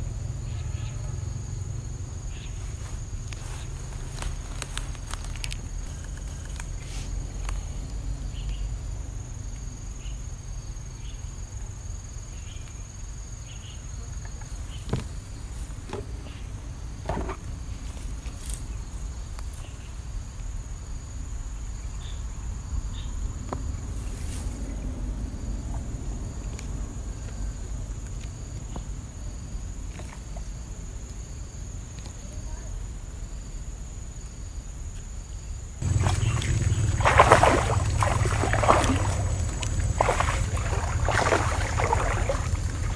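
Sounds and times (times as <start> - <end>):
insect chirping: 0.0 - 42.9
insects droning: 0.0 - 42.9
low rumble: 35.8 - 42.9.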